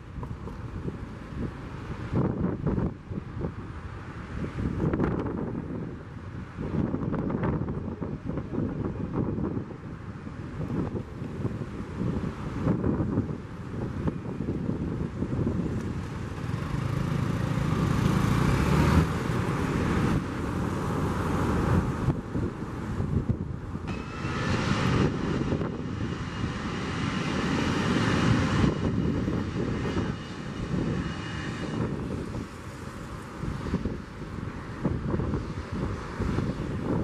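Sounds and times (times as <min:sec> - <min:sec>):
jet engines rumbling: 0:00.0 - 0:37.0
faint high whine: 0:23.9 - 0:26.4.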